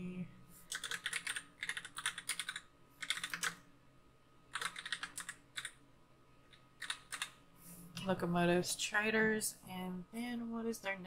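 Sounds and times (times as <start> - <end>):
keyboard typing: 0.7 - 3.6, 4.5 - 5.8, 6.8 - 7.4.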